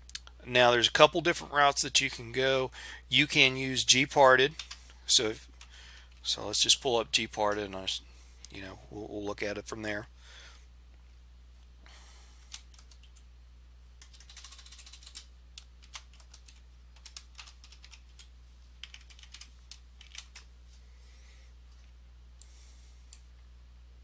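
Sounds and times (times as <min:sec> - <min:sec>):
low electrical hum: 0:00.0 - 0:24.0
keyboard keys clicking: 0:12.5 - 0:13.2, 0:14.0 - 0:20.5.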